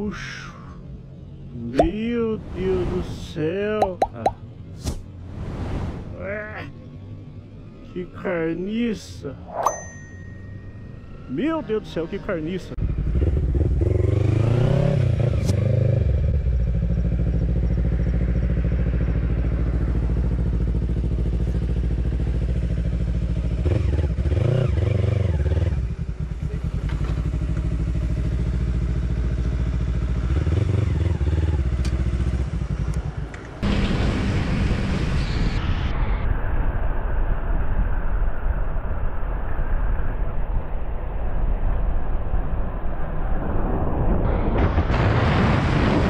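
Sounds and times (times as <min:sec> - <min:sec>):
motorcycle riding at speed: 0:12.8 - 0:44.5
motorcycle engine idling: 0:25.9 - 0:30.3.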